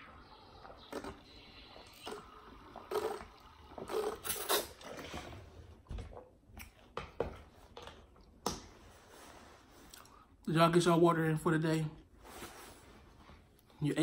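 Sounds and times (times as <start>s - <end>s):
man gulping water: 0.6s - 6.5s
breaths and mouth sounds: 0.6s - 6.8s.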